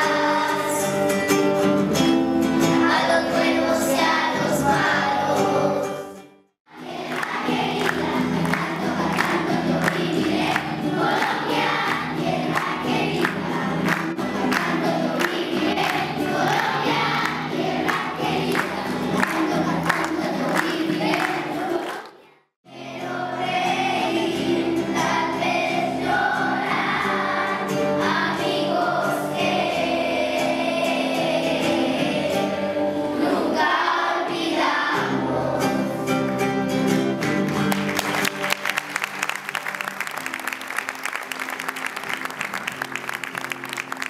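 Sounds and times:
children's choir singing: 0.0s - 1.5s, 2.4s - 36.4s
acoustic guitar: 0.0s - 44.0s
applause: 7.0s - 22.2s, 37.2s - 44.0s.

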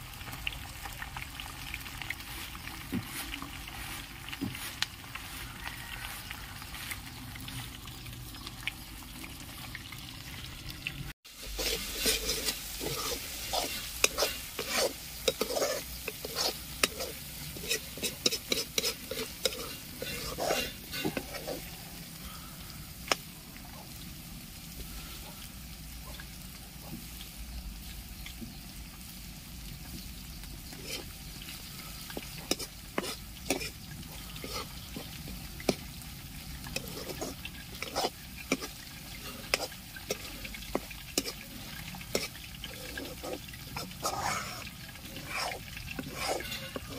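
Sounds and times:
fish frying in oil: 0.0s - 46.9s
metal spoon scraping a wok: 11.3s - 22.1s, 30.7s - 46.9s.

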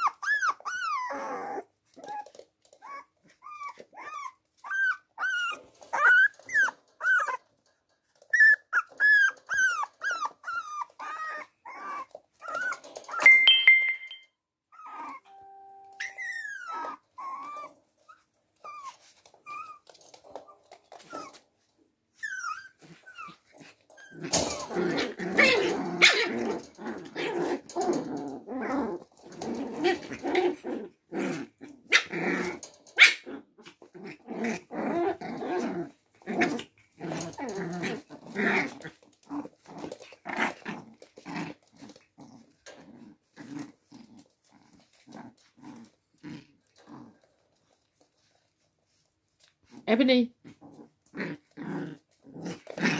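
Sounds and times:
puppies growling: 0.0s - 13.3s, 18.6s - 52.9s
high squeaks: 14.8s - 17.6s.

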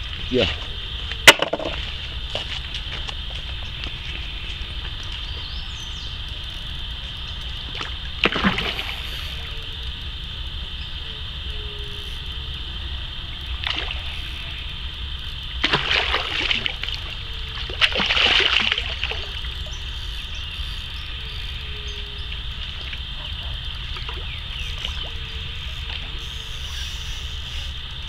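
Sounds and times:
steady high-pitched whine: 0.0s - 28.0s
fish splashing at water surface: 7.6s - 9.5s, 15.6s - 19.6s.

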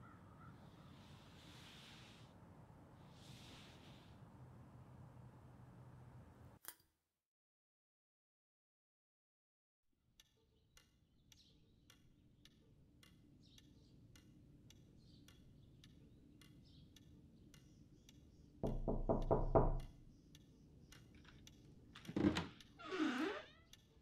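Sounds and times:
clock ticking: 10.2s - 22.8s
knocks on front door: 18.6s - 19.8s.

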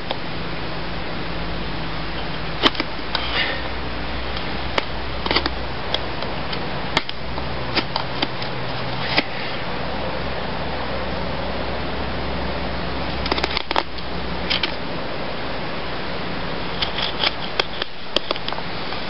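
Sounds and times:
steady background hiss: 0.0s - 19.0s
knife scraping wood: 16.6s - 18.6s.

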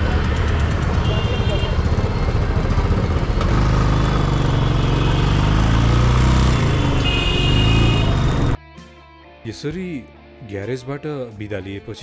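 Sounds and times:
motorcycle engine running: 0.0s - 8.6s.

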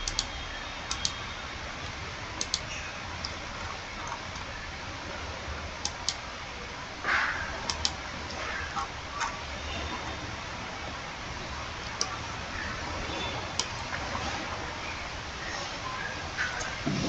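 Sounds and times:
computer mouse clicking: 0.0s - 1.2s, 2.4s - 3.4s, 5.8s - 6.2s, 7.6s - 8.0s
low hum and hiss: 0.0s - 17.0s.

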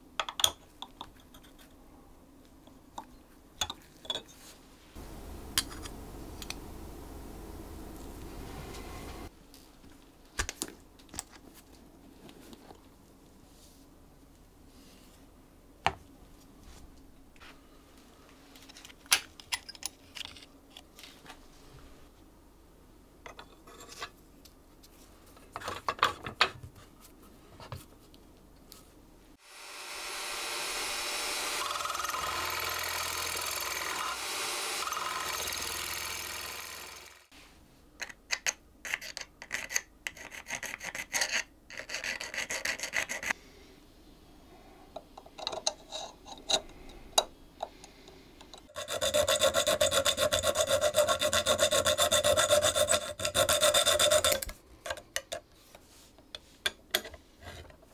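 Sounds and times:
electric drill boring metal: 29.4s - 37.3s
small file on metal: 38.9s - 43.4s, 48.7s - 54.6s.

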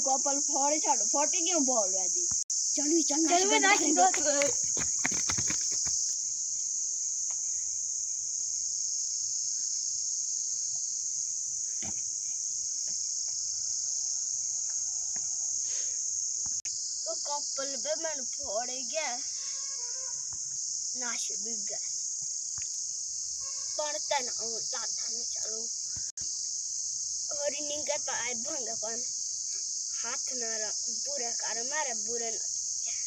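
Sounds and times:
insect chorus drone: 0.0s - 33.0s
person's voice: 3.1s - 4.6s.

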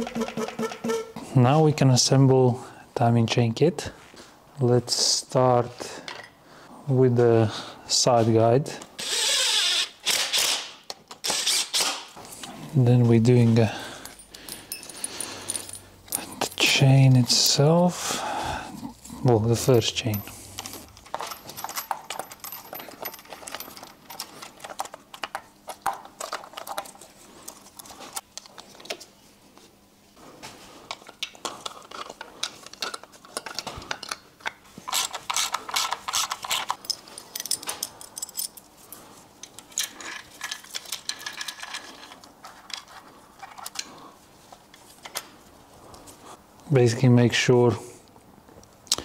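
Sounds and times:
metal chain clinking and rattling: 13.8s - 17.5s, 19.0s - 25.0s, 34.9s - 42.2s.

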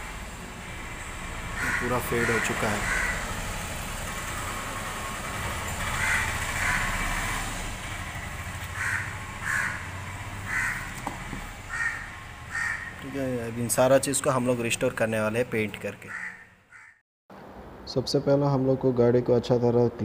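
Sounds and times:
bird calling: 1.5s - 3.4s, 5.8s - 7.2s, 8.7s - 13.1s, 16.0s - 17.0s.

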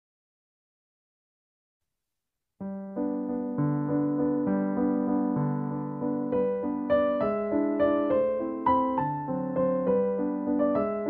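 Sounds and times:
solo piano tune: 2.6s - 11.0s.

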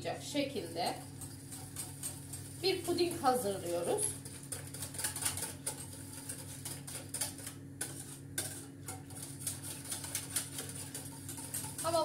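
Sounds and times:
steady low hum: 0.0s - 12.0s
whisk clicking against metal pot: 0.9s - 12.0s.

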